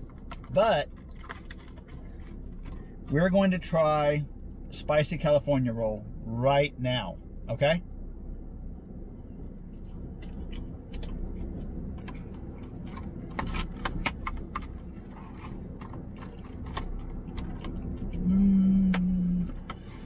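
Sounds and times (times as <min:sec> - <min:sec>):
person chewing food: 0:00.0 - 0:03.0, 0:09.7 - 0:20.0
low hum in car cabin: 0:00.0 - 0:20.0
person humming mmm: 0:18.2 - 0:19.6.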